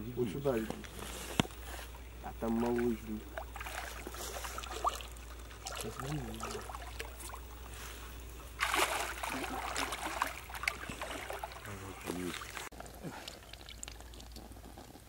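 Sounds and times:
water splashing and dripping: 0:02.4 - 0:07.7, 0:08.5 - 0:14.4.

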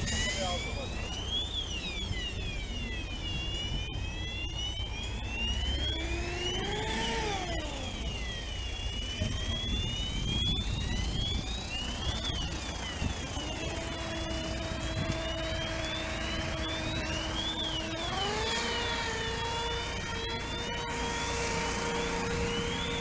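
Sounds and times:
lower siren tone: 0:00.0 - 0:23.0
siren wailing: 0:00.0 - 0:23.0.

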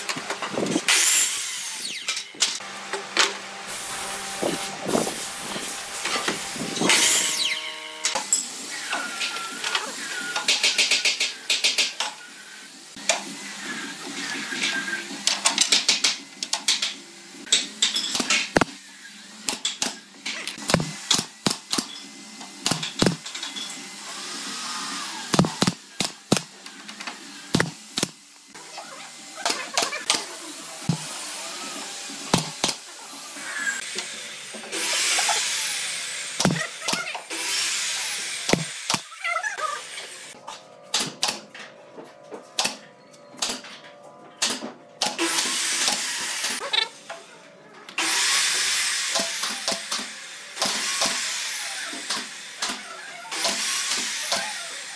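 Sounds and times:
power tool running: 0:00.4 - 0:40.4, 0:45.0 - 0:47.1, 0:48.0 - 0:54.9
knocks and clicks of wood and tools: 0:15.2 - 0:18.8, 0:19.4 - 0:21.9, 0:22.5 - 0:23.6, 0:25.3 - 0:28.2, 0:32.3 - 0:32.8, 0:36.4 - 0:37.2, 0:38.5 - 0:39.1.

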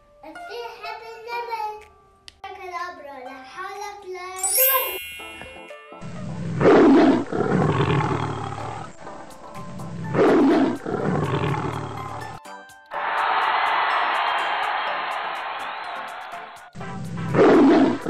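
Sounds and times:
leopard roar: 0:06.6 - 0:09.0, 0:10.1 - 0:12.4.

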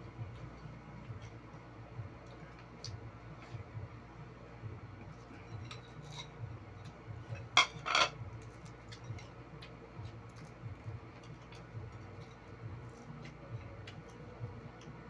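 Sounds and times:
clicks and handling of eating: 0:00.1 - 0:03.8, 0:05.0 - 0:15.0
plate rattling and scraping: 0:05.3 - 0:06.4, 0:07.3 - 0:08.2
plate clacking on tiled floor: 0:07.4 - 0:08.2.

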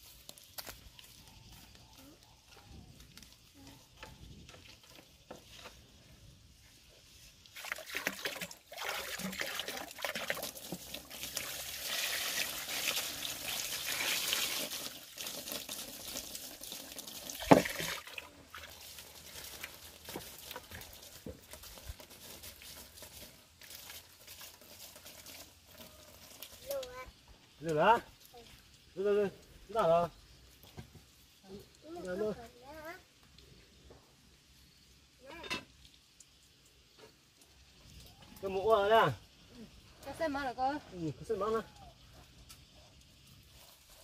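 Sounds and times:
water splashing on bamboo slats: 0:07.4 - 0:26.8.

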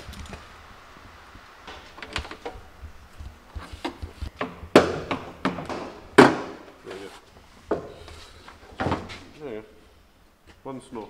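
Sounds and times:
plastic parts knocking: 0:03.8 - 0:06.8.

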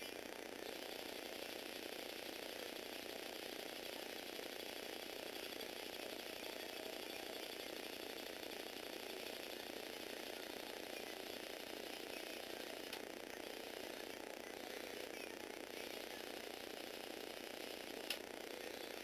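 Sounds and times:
toy electric motor running: 0:00.0 - 0:19.0.

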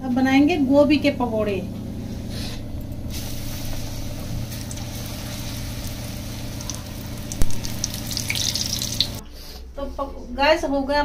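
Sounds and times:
low hum: 0:00.0 - 0:09.3
food sizzling in hot oil: 0:03.1 - 0:09.2.

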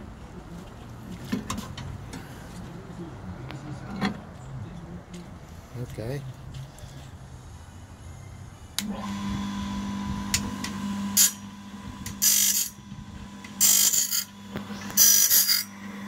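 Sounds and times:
electric motor humming: 0:08.8 - 0:16.0
abrasive wheel grinding blade teeth: 0:12.1 - 0:12.8, 0:13.5 - 0:16.0.

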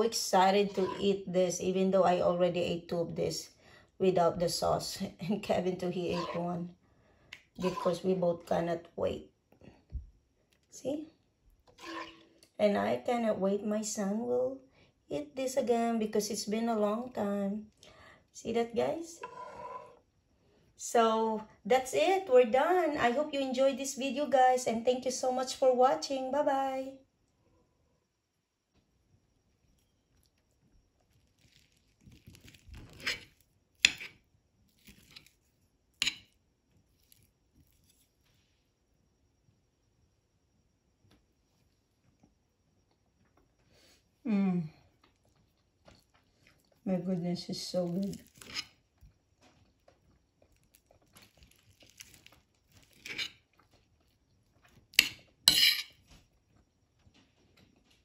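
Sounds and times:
fork scraping on plate: 0:00.7 - 0:01.1, 0:06.1 - 0:06.4, 0:07.6 - 0:08.0, 0:11.7 - 0:12.3, 0:19.2 - 0:20.0, 0:32.9 - 0:34.2, 0:36.0 - 0:36.3, 0:48.2 - 0:48.8, 0:52.9 - 0:53.4, 0:55.0 - 0:56.0
fork clinking on plate: 0:36.0 - 0:36.3, 0:55.0 - 0:56.0.

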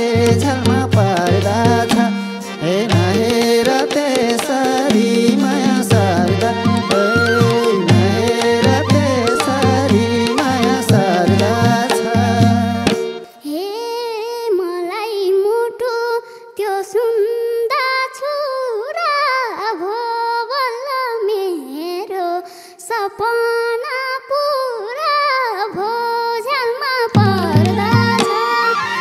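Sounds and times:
girl singing solo: 0:06.7 - 0:11.1, 0:13.4 - 0:29.0.

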